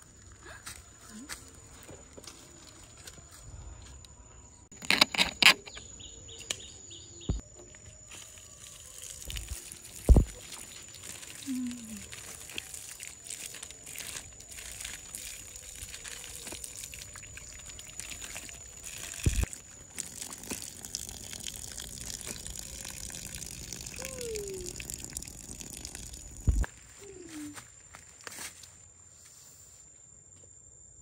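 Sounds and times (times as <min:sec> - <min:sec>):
water pouring and splashing: 0:07.9 - 0:26.7.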